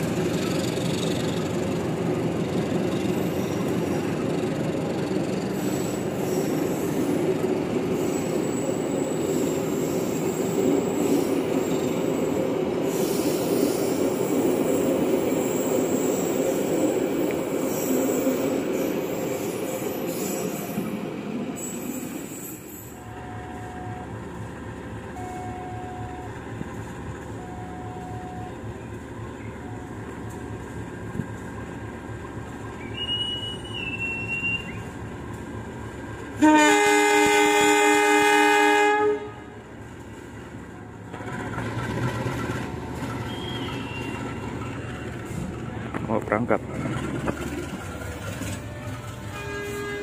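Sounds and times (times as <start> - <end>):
diesel locomotive engine running: 22.9 - 50.0
multi-tone train horn: 23.0 - 24.2, 27.4 - 28.6, 36.4 - 39.7, 48.6 - 50.0
high whistle: 32.8 - 34.9, 43.2 - 44.5.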